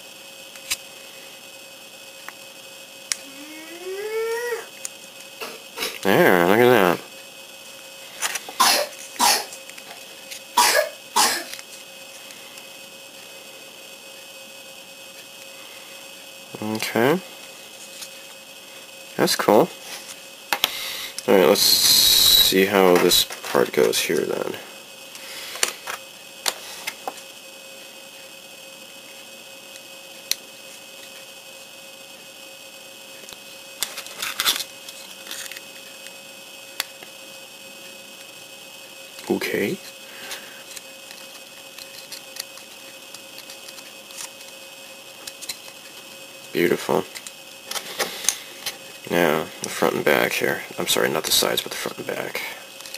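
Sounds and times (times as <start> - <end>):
faint electrical hum: 0.0 - 52.9
person coughing: 8.6 - 9.5, 10.6 - 11.6
plastic parts clicking together: 33.8 - 35.6, 40.7 - 44.6.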